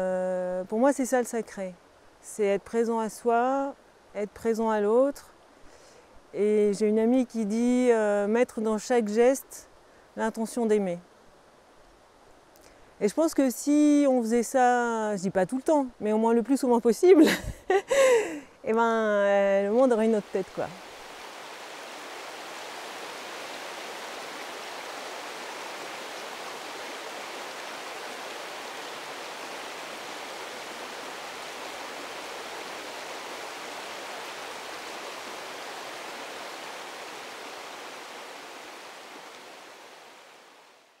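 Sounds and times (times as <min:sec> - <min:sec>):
rushing water: 0:19.4 - 0:41.0.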